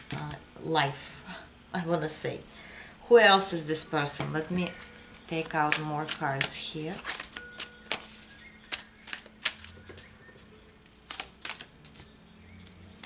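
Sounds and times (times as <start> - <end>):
cards clicking and tapping: 4.2 - 13.0.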